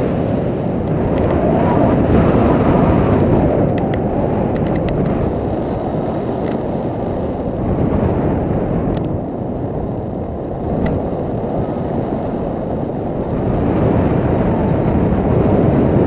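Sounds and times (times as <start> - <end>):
wind rushing: 0.0 - 9.0
faint clicks: 3.6 - 7.5.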